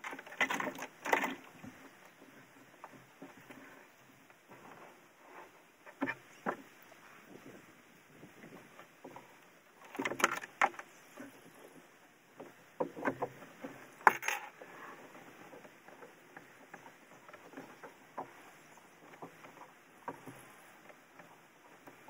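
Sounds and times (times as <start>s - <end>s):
metal parts clicking and knocking: 14.0s - 14.5s.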